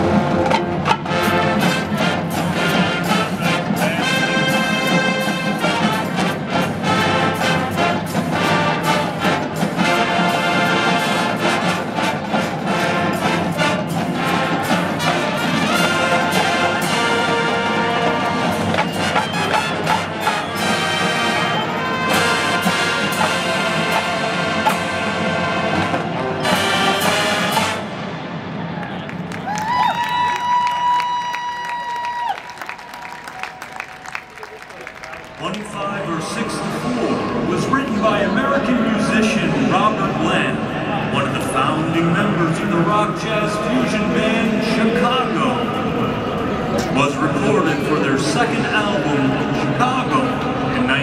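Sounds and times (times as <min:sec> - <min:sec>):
drumline steady beat: 0:00.0 - 0:28.5
trumpets and trombones playing chords: 0:00.0 - 0:28.6.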